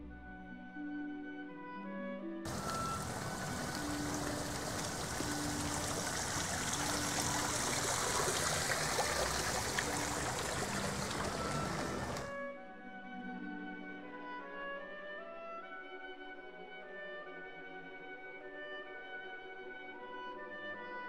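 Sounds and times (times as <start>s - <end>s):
faint music: 0.0s - 21.0s
steady rushing outdoor noise: 2.5s - 12.3s.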